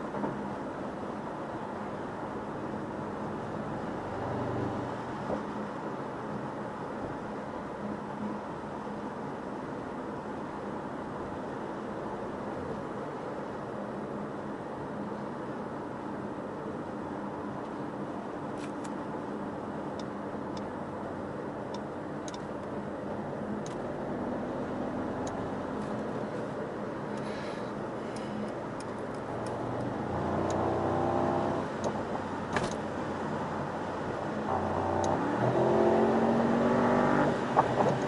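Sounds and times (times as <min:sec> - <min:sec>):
car engine at speed: 0:00.1 - 0:09.6, 0:18.5 - 0:38.0.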